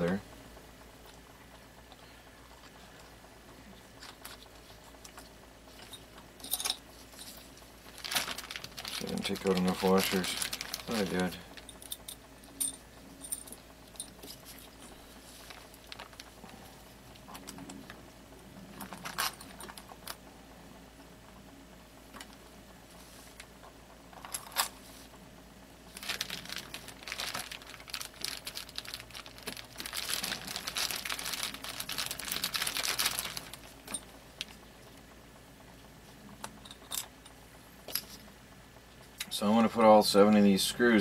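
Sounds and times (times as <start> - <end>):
plastic crinkling: 7.2 - 11.8, 14.2 - 18.0, 18.7 - 20.2, 25.9 - 34.6.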